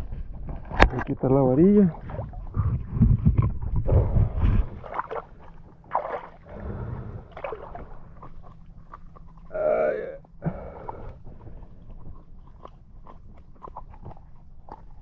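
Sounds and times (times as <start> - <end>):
water splashing and sloshing: 0.0 - 15.0.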